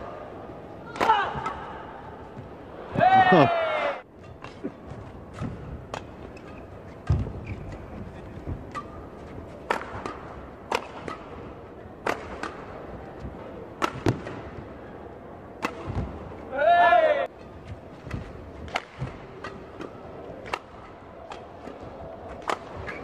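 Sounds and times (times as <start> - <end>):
low arena hum: 0.0 - 23.0
rackets striking shuttlecock: 4.2 - 12.8, 13.6 - 14.6, 15.6 - 16.2, 18.0 - 23.0.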